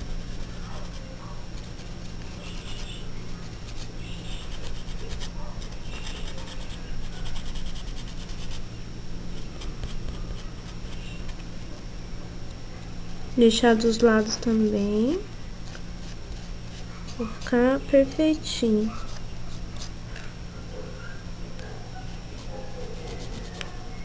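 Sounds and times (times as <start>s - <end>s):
steady low hum: 0.0s - 24.0s
nail buffer scratching fingernail: 0.2s - 8.6s, 22.4s - 23.8s.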